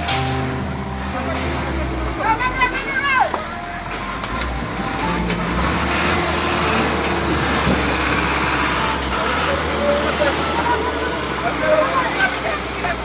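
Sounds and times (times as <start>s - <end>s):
truck engine running: 0.0s - 13.0s
loud rushing noise: 4.0s - 11.6s.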